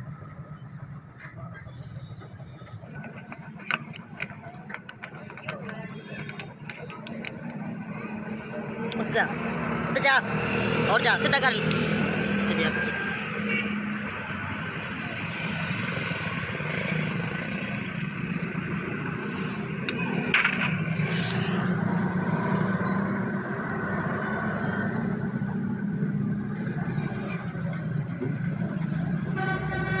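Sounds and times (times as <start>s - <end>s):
engine idling hum: 0.0s - 9.8s.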